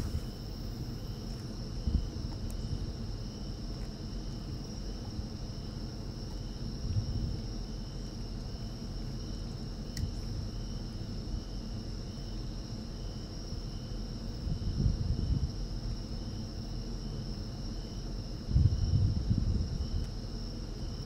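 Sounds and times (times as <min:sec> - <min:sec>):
insects trilling: 0:00.0 - 0:21.0
low outdoor rumble: 0:00.0 - 0:21.0
faint click: 0:09.9 - 0:10.1.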